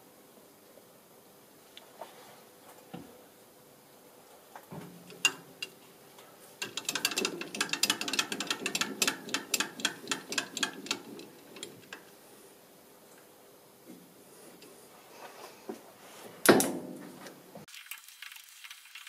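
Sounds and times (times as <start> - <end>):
micrometer ratchet clicking: 6.6 - 12.0.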